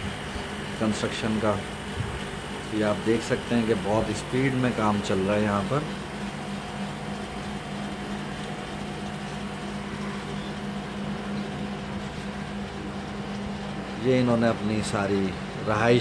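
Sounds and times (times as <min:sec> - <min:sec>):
machine hum: 0:00.0 - 0:16.0.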